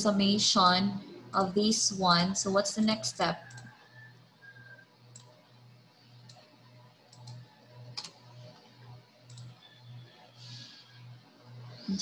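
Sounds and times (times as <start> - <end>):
low pulsing hum: 0.0 - 12.0
computer mouse clicks: 3.4 - 9.9.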